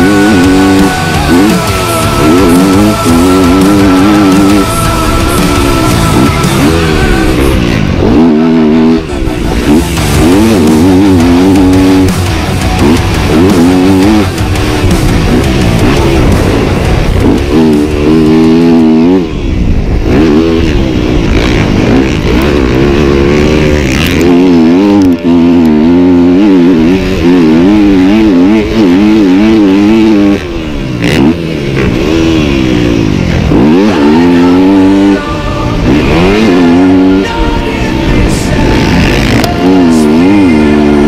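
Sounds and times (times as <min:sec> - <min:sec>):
motorcycle engine revving: 0:00.0 - 0:41.0.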